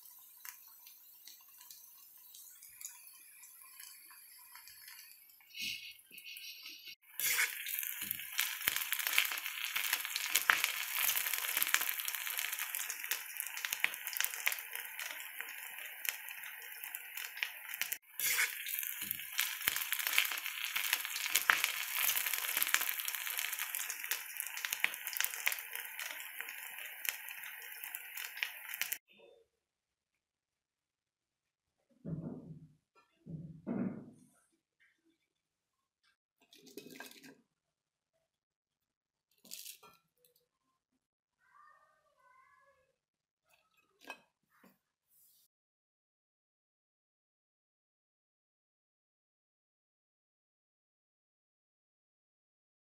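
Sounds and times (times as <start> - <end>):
potatoes sizzling in hot oil: 0.0 - 29.0.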